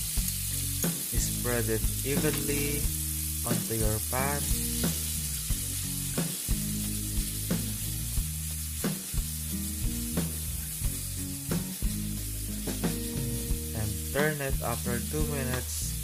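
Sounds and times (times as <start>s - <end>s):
meat sizzling in oil: 0.0s - 16.0s.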